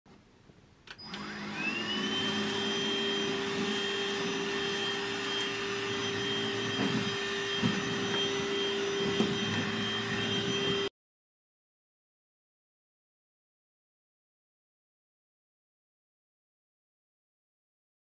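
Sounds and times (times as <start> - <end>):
vacuum motor whine: 0.9 - 10.9.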